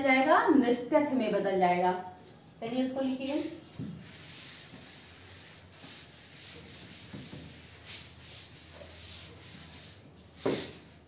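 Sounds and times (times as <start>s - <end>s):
duster wiping chalkboard: 3.0s - 11.0s.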